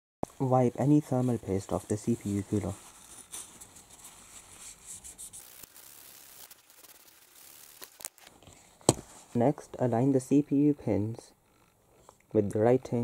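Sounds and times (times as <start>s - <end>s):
tissue rubbing on metal: 0.4s - 9.6s.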